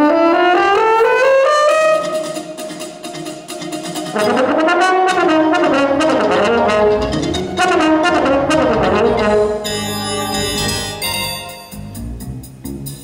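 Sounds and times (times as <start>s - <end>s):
electronic tape accompaniment: 1.6s - 4.6s, 5.4s - 13.0s
french horn playing: 4.1s - 12.0s.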